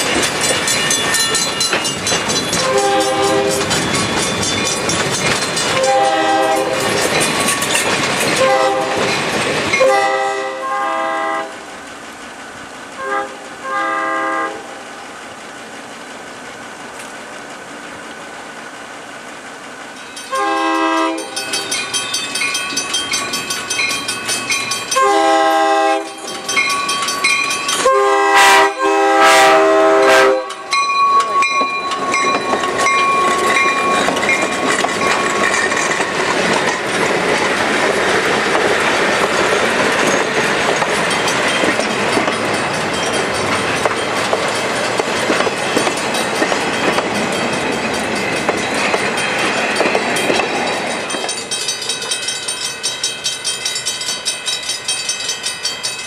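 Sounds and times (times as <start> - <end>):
steel wheels on rails: 0.0 - 56.0
locomotive air horn blasts: 2.6 - 3.6, 5.8 - 6.8, 8.4 - 9.1, 9.8 - 11.6, 13.0 - 14.7, 20.3 - 21.3, 25.0 - 26.2, 27.8 - 30.7.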